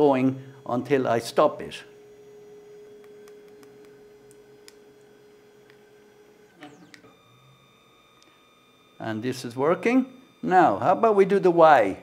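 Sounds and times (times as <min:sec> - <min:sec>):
stepper motor whine: 0:00.0 - 0:12.0
faint high steady tone: 0:06.8 - 0:12.0.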